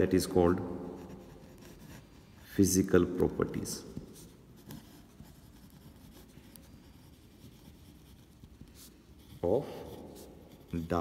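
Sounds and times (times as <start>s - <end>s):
pen scratching on paper: 0.9s - 2.5s, 4.1s - 11.0s.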